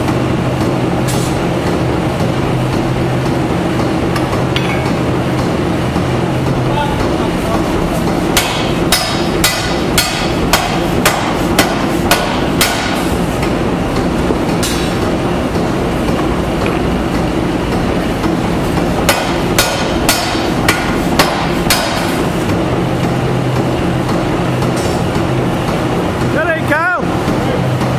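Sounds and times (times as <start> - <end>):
machinery humming: 0.0 - 27.9
power hammer striking steel: 4.5 - 5.0, 8.3 - 13.6, 14.5 - 15.7, 18.2 - 22.2.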